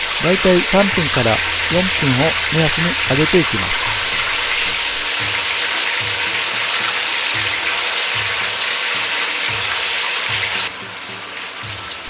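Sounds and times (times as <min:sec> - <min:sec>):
oil sizzling while deep-frying: 0:00.0 - 0:12.0.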